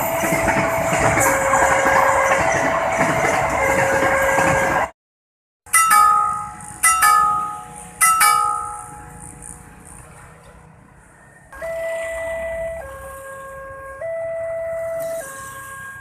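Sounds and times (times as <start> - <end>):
electronic crossing alarm tone: 5.7 - 9.6, 11.5 - 16.0
crossing warning bell strokes: 5.7 - 9.9.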